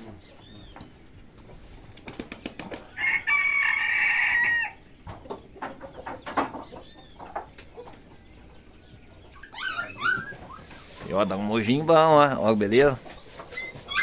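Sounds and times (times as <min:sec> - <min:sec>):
rooster crowing: 0:03.0 - 0:04.8.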